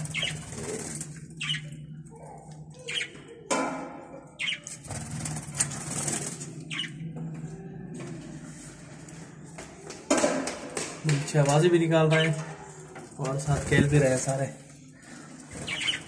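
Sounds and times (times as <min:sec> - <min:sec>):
budgerigars chirping: 0:00.0 - 0:00.7, 0:01.4 - 0:01.7, 0:04.4 - 0:04.6, 0:06.7 - 0:06.9, 0:12.1 - 0:12.4, 0:15.6 - 0:16.0.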